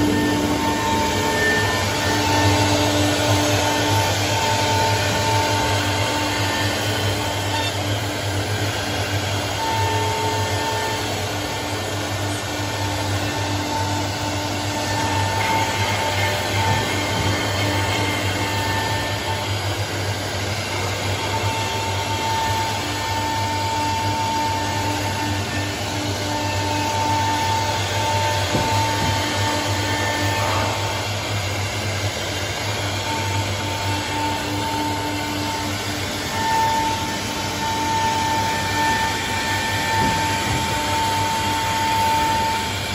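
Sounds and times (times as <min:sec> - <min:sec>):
dust extractor humming: 0:00.0 - 0:42.9
router spindle whirring: 0:00.0 - 0:42.9.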